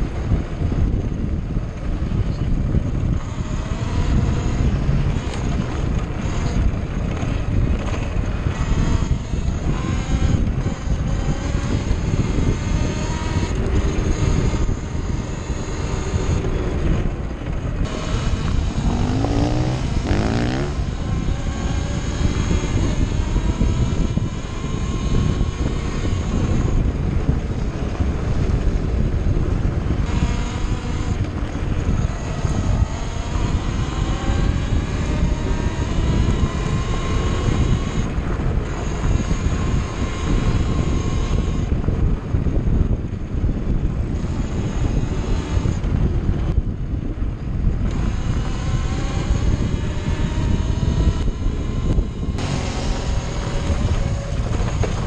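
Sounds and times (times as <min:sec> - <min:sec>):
motorcycle engine revving: 0:00.0 - 0:55.0.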